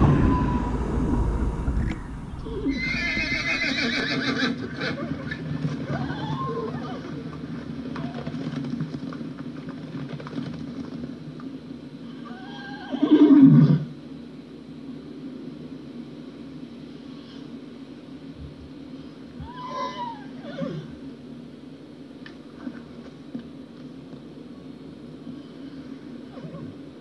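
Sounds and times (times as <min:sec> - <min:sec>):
horses whinnying: 0:02.4 - 0:08.6, 0:12.1 - 0:13.9, 0:19.4 - 0:21.0.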